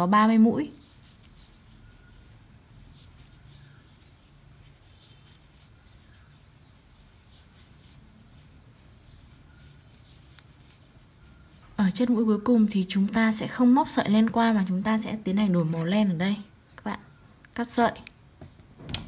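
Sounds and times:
crochet hook scratching yarn: 0.0 - 14.6
low steady hum: 0.0 - 19.0.

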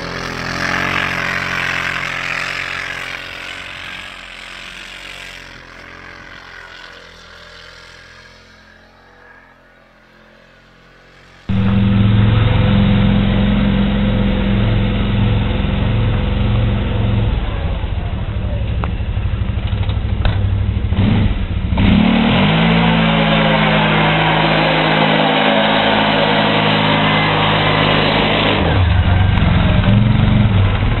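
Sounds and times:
atv engine revving: 0.0 - 31.0.

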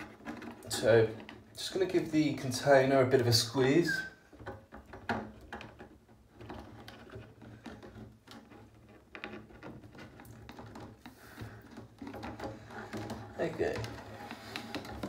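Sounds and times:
plastic container crackling: 0.0 - 15.0.

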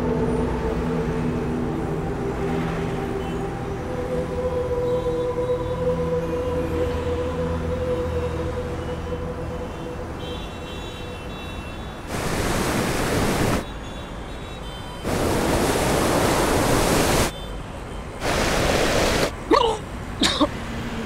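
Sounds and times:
loud rushing noise: 12.1 - 13.6, 15.1 - 17.3, 18.2 - 19.3.

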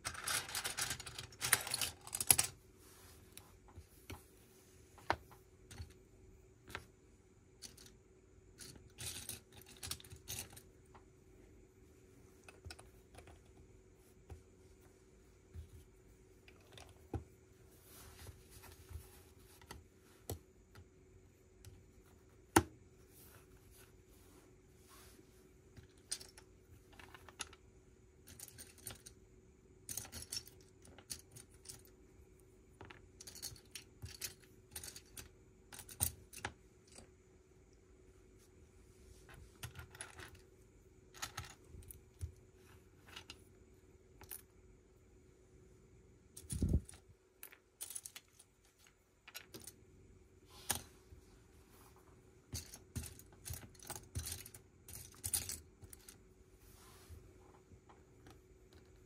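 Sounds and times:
plastic bricks clicking and clattering: 0.0 - 2.6, 8.6 - 10.7, 28.3 - 29.1, 29.9 - 31.9, 32.8 - 37.0, 52.5 - 56.2
faint steady hum: 0.0 - 59.0.

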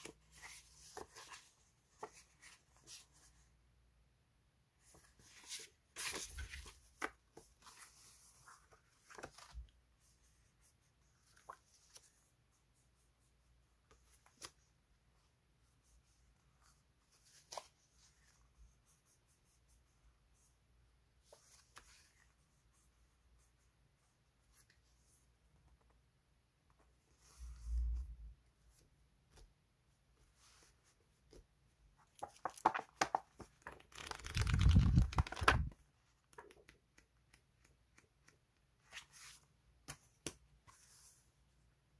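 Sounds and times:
paper sheets rustling: 32.1 - 35.8.

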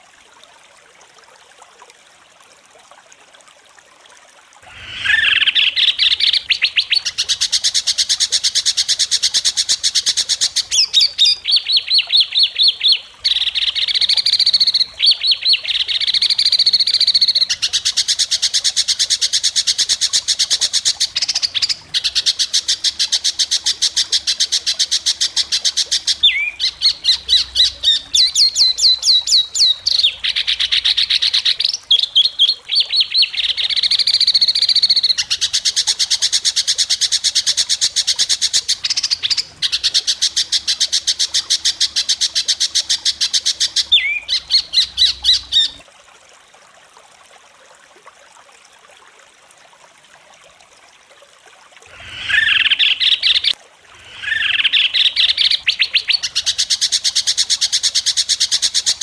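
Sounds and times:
songbirds singing shrill trills: 26.0 - 35.4, 43.6 - 45.8.

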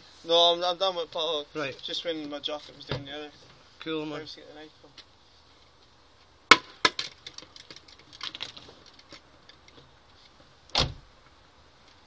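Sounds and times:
light ticks and rustles: 7.0 - 12.0.

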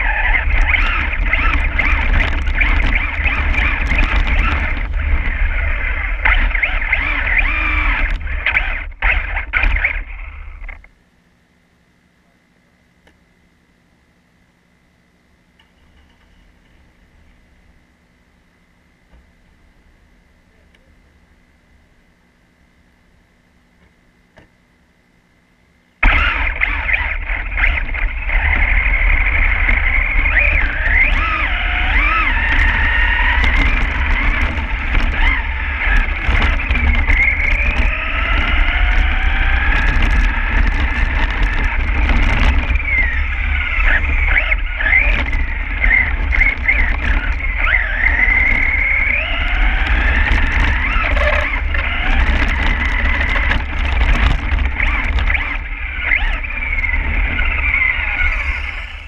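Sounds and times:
toy truck motor whining: 0.0 - 10.8, 26.0 - 59.0
tyres rumbling through slush: 26.0 - 59.0.

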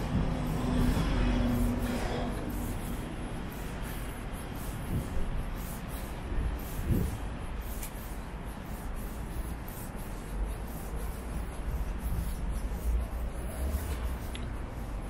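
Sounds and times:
low city rumble: 0.0 - 15.0.

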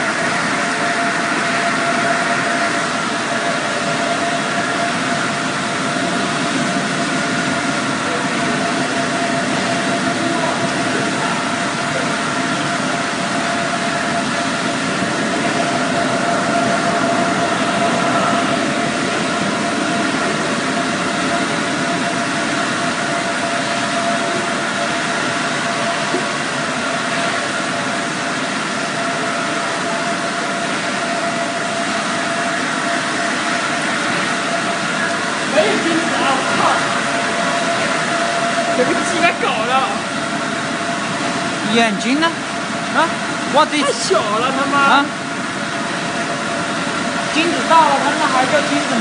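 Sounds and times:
machine drone: 0.0 - 49.0.

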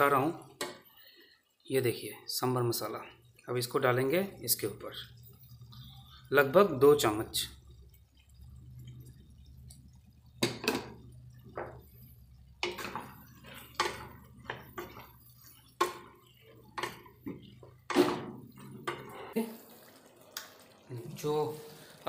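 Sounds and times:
low steady hum: 2.7 - 19.2
wooden spatula scraping a pan: 10.6 - 19.4.

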